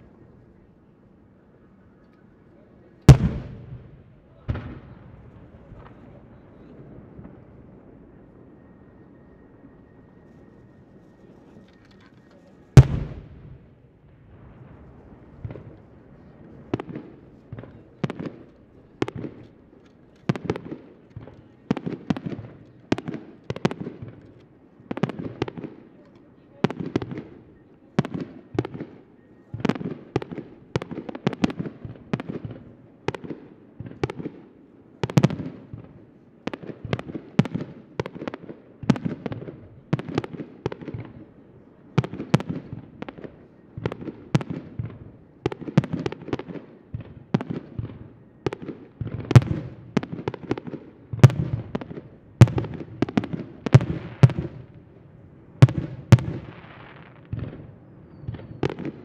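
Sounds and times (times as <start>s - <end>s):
fireworks bursting: 3.1s - 8.2s, 10.9s - 24.2s, 42.0s - 55.0s, 55.6s - 59.0s.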